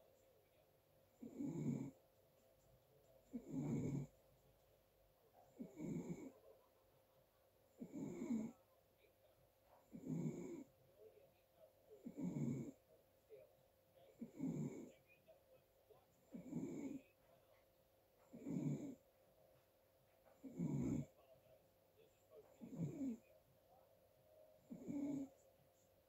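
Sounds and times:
rough snoring: 1.2s - 2.0s, 3.3s - 4.1s, 5.6s - 6.4s, 7.8s - 8.6s, 9.9s - 10.7s, 12.0s - 12.8s, 14.1s - 14.9s, 16.3s - 17.0s, 18.3s - 19.0s, 20.4s - 21.2s, 22.6s - 23.2s, 24.6s - 25.4s.

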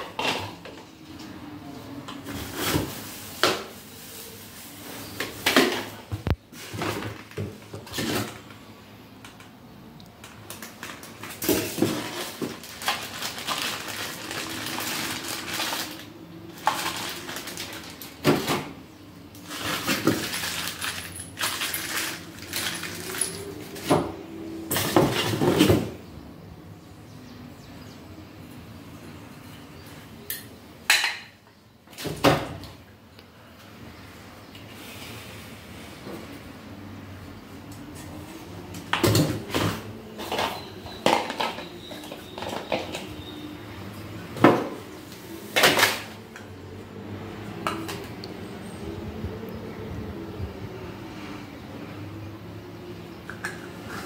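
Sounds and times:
plastic wrapping rustling: 2.2s - 8.6s, 10.2s - 18.6s, 19.4s - 24.0s.

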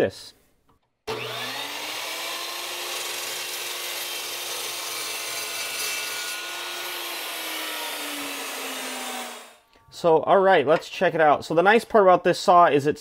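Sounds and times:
chop saw motor whine: 1.1s - 9.6s
saw cutting through metal: 1.1s - 9.6s.

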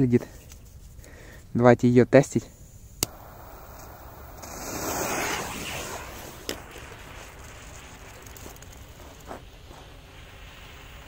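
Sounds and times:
faint wind: 0.0s - 11.0s
fuse sputtering and hissing: 3.0s - 11.0s.

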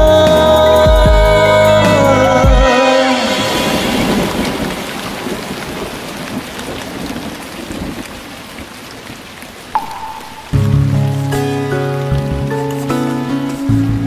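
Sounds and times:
music: 0.0s - 4.4s, 9.8s - 14.0s
rain falling: 0.0s - 14.0s
brief tone: 9.8s - 10.8s.

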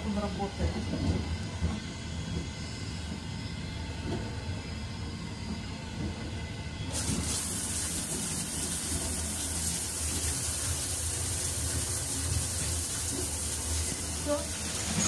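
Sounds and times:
shower spraying water: 6.9s - 15.0s.

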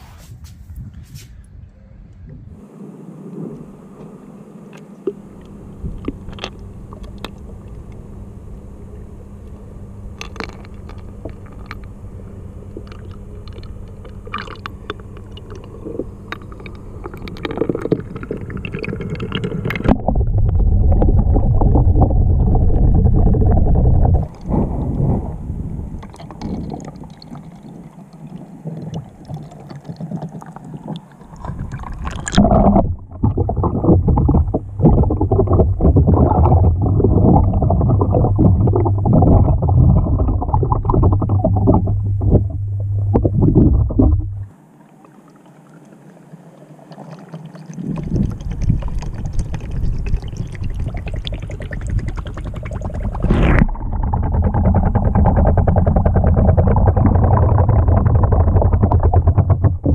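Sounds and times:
muffled water sloshing and gurgling: 4.7s - 59.9s.

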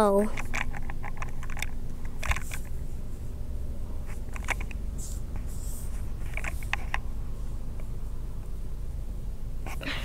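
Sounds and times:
fingers rubbing on phone: 4.1s - 7.0s.

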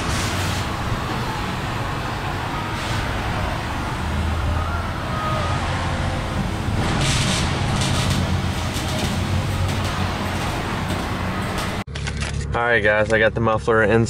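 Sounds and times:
welding crackling hiss: 6.4s - 11.8s.

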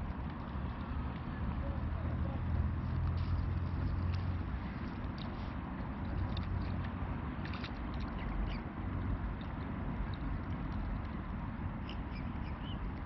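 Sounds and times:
waterbird calls: 8.0s - 8.7s, 11.8s - 13.0s.

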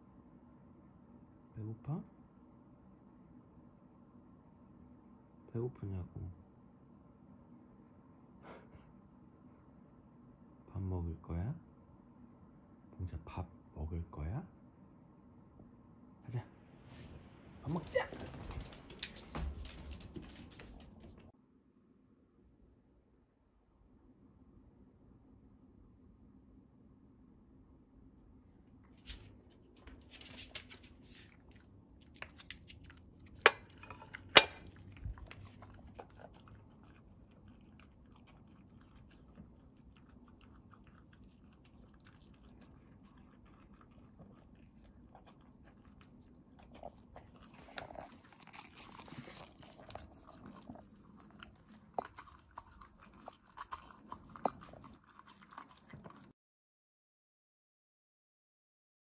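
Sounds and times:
dog chewing and licking: 17.7s - 21.3s, 28.9s - 56.3s.

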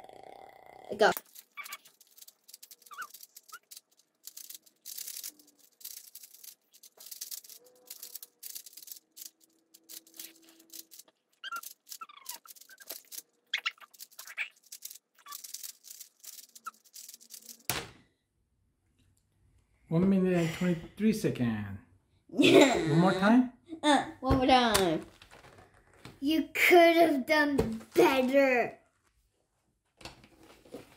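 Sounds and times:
puzzle cube plastic clicks: 1.2s - 17.8s.

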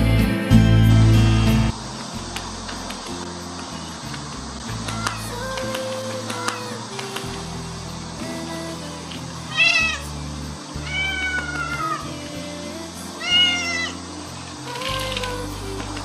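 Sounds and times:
cat meowing: 4.8s - 5.4s, 9.5s - 10.1s, 10.8s - 12.1s, 13.2s - 14.0s.

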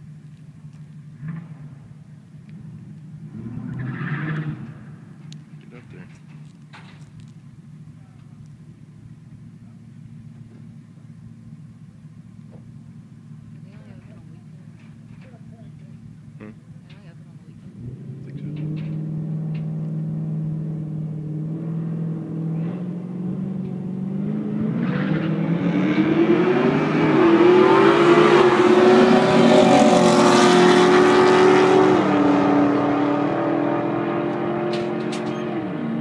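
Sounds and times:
racing car engines accelerating: 2.5s - 6.2s, 17.5s - 36.0s.

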